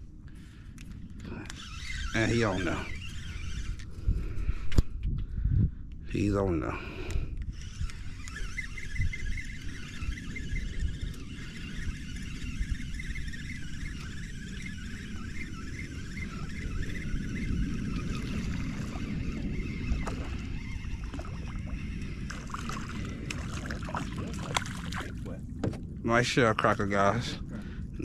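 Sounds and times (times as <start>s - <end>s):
wind buffeting microphone: 0.0s - 28.0s
water lapping at boat hull: 19.9s - 25.8s.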